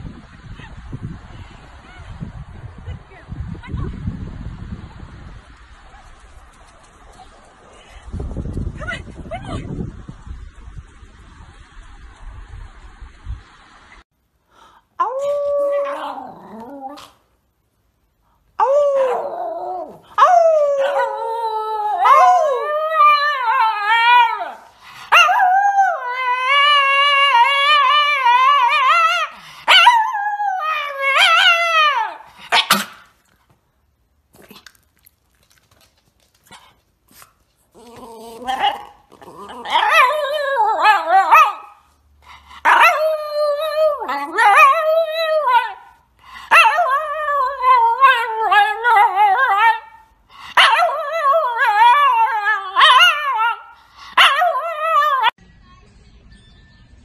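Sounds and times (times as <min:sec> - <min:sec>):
dog howling: 0:37.8 - 0:41.7, 0:42.7 - 0:45.9.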